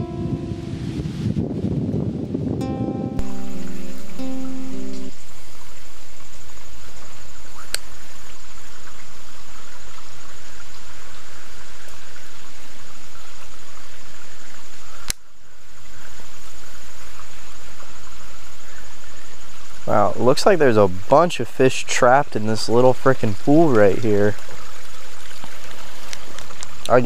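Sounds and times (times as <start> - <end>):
high insect drone: 0.0 - 27.0
sharp clicks: 15.0 - 15.2.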